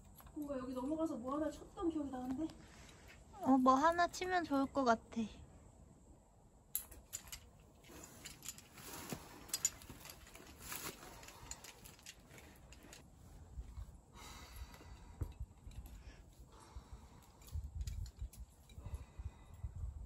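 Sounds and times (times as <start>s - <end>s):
climbing gear clinking: 6.7s - 13.1s, 14.6s - 19.6s.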